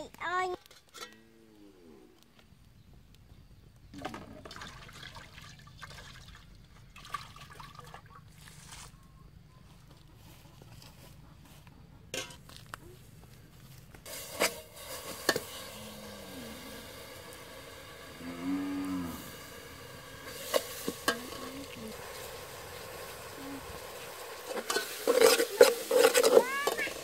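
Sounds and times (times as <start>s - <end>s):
paste sizzling and bubbling: 14.1s - 27.0s
cow mooing: 15.7s - 16.8s, 18.2s - 19.4s.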